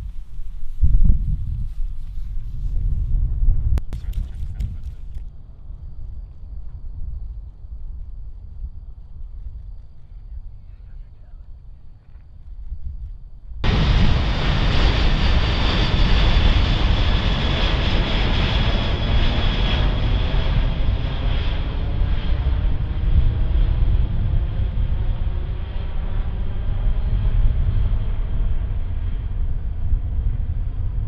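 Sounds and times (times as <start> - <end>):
jet aircraft passing overhead: 13.6 - 31.0.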